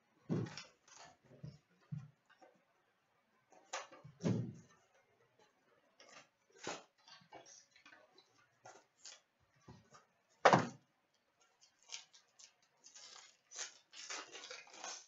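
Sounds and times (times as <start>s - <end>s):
cardboard packaging rustling: 11.6s - 15.0s
wrapper crinkling and tearing: 11.6s - 15.0s.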